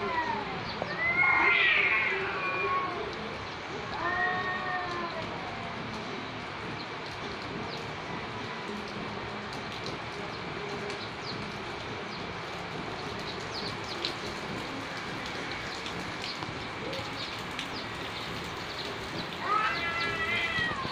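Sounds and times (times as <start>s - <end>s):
rain on wet street: 0.0s - 20.9s.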